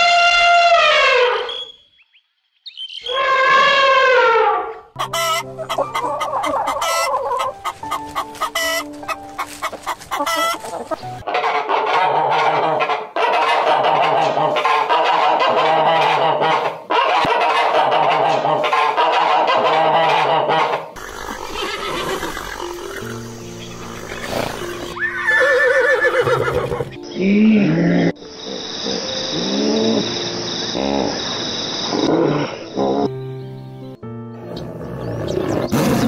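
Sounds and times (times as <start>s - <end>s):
elephant trumpeting: 0.0s - 1.7s, 3.0s - 7.6s, 23.9s - 28.1s
ducks quacking: 5.0s - 25.0s.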